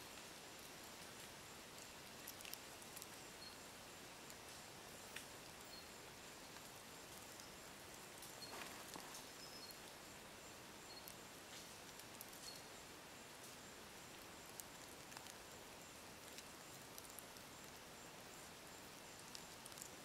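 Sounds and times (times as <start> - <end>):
faint outdoor background hiss: 0.0 - 20.0.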